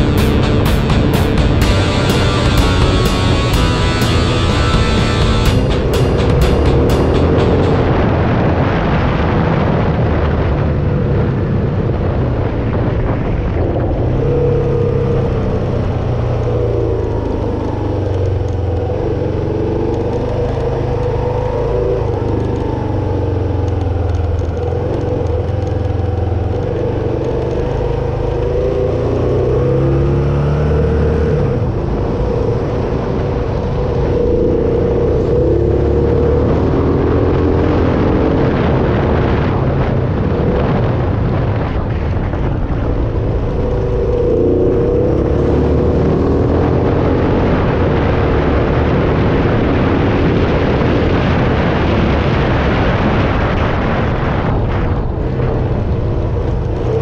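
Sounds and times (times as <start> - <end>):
motorcycle engine running: 0.0 - 8.7
wind and road noise: 0.0 - 57.0.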